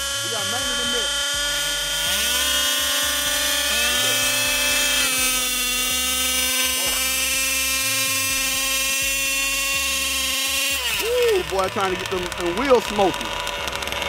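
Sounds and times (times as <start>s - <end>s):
small two-stroke engines buzzing: 0.0s - 14.0s.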